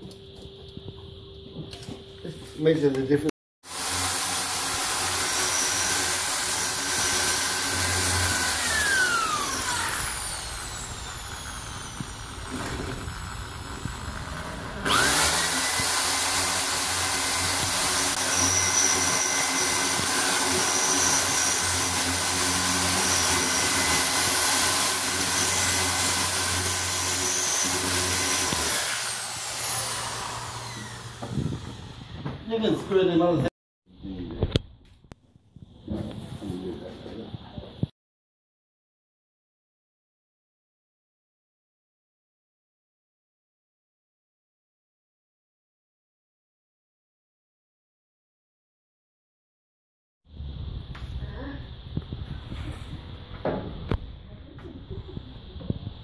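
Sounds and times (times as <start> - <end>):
electric drill boring into brick: 3.6 - 32.3.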